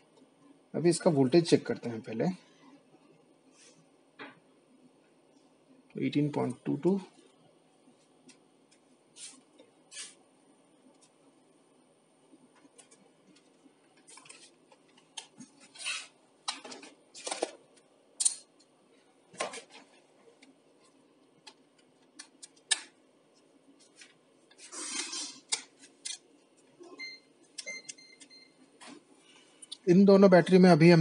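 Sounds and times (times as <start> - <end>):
tools clicking and clinking: 18.2 - 18.5.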